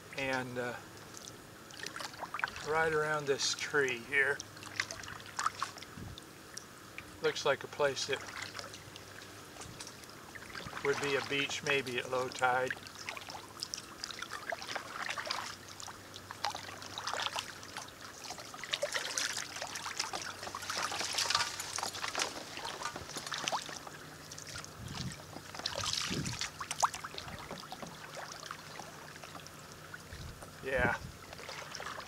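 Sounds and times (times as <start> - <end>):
kayak paddle dipping in water: 0.0 - 32.0
water lapping at hull: 0.0 - 32.0
water splashing: 0.0 - 32.0
water dripping off paddle: 0.1 - 7.1, 7.7 - 30.6.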